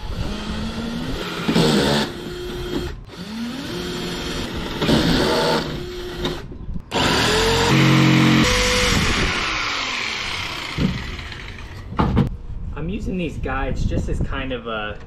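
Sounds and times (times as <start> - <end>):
cordless drill boring into wood: 0.0 - 11.8.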